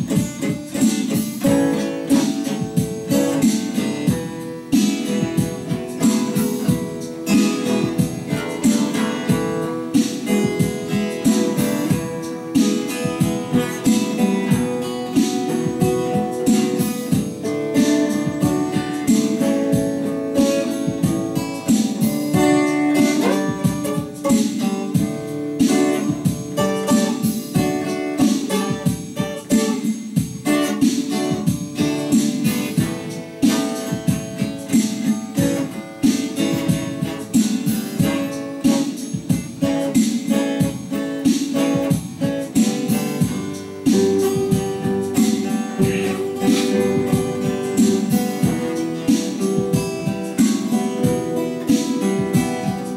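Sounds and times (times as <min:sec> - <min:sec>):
twelve-string acoustic guitar: 0:00.0 - 0:52.9.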